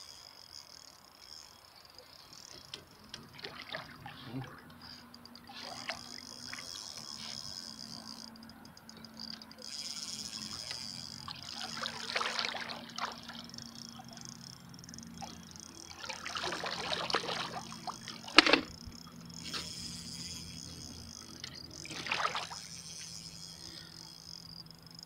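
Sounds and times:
water splashing and sloshing: 2.0s - 4.7s, 5.4s - 7.4s, 10.5s - 14.4s, 15.0s - 19.8s, 20.6s - 23.2s.

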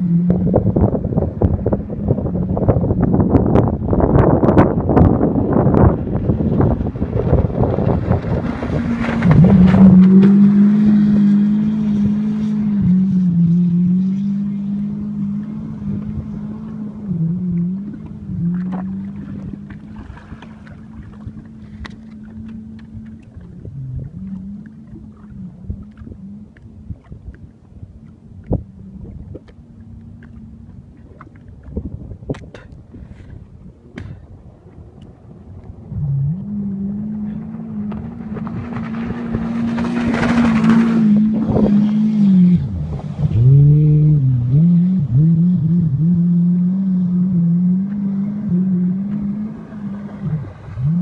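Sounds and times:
rushing wind: 0.0s - 51.0s
water noise: 0.0s - 51.0s
watercraft engine running: 0.0s - 51.0s.

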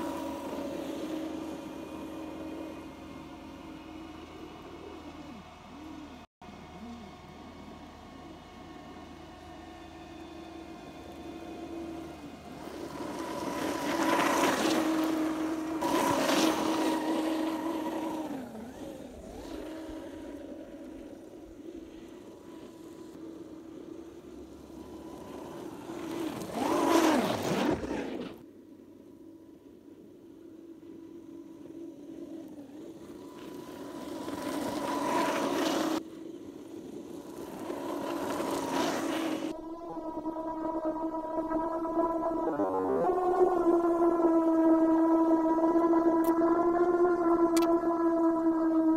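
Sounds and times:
rc truck motor whining: 0.0s - 48.9s
tyres throwing snow: 12.8s - 20.1s, 25.6s - 28.4s.

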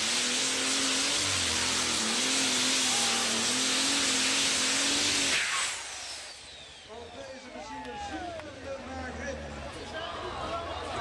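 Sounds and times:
diesel engine roaring flat out: 0.0s - 7.0s.

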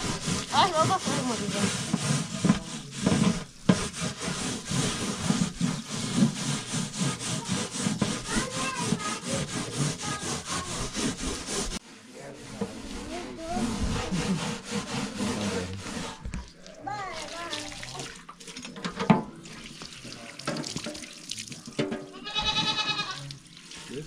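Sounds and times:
hands scrubbing metal tray: 0.0s - 16.3s.

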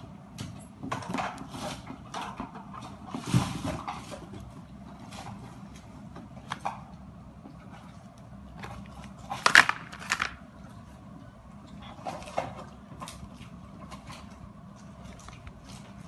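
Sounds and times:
low steady hum: 0.0s - 16.0s
plastic packaging crinkling: 9.4s - 10.4s.

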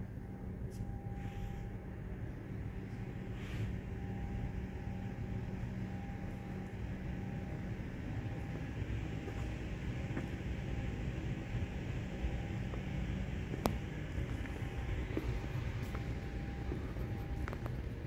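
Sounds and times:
faint higher tone: 0.0s - 10.8s
low hum and rumble: 0.0s - 18.0s.

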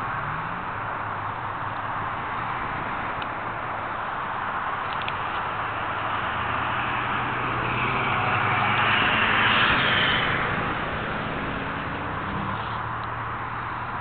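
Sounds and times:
low engine hum: 0.0s - 14.0s
vehicle driving past: 5.6s - 13.6s.

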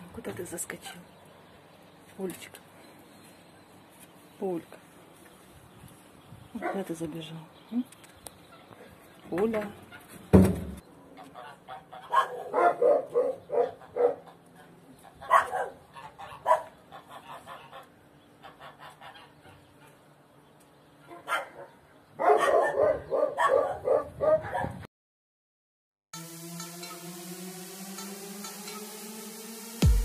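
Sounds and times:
dog barking: 12.0s - 14.4s, 15.2s - 16.8s, 21.1s - 24.8s.

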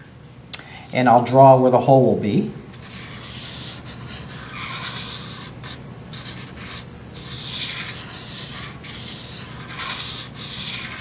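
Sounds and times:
marker scratching on cardboard: 2.8s - 11.0s.

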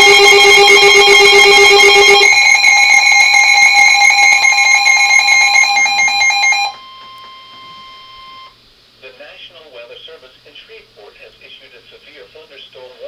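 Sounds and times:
weather radio alarms: 0.0s - 8.6s.

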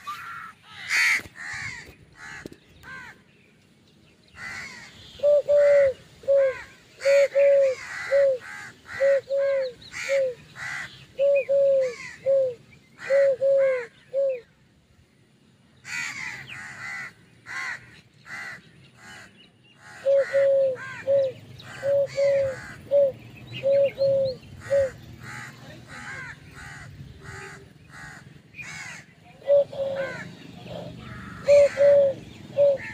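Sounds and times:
birds chirping: 0.0s - 32.9s.

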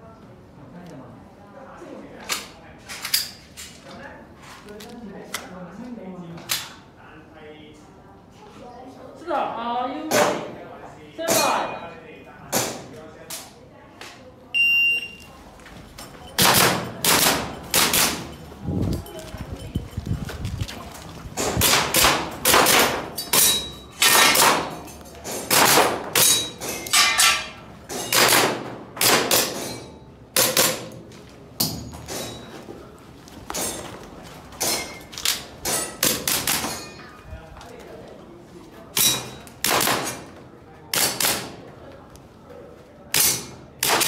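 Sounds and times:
shot timer beep: 14.6s - 15.2s
pistol shots: 21.6s - 23.1s, 25.5s - 26.5s.

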